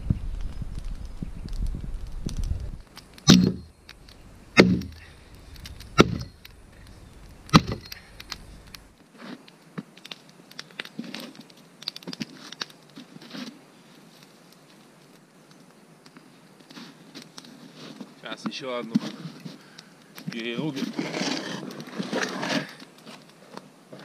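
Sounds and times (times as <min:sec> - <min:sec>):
campfire crackling: 0:00.0 - 0:24.0
axe chopping a log: 0:03.3 - 0:03.7, 0:04.6 - 0:05.0, 0:06.0 - 0:06.3, 0:07.5 - 0:07.9.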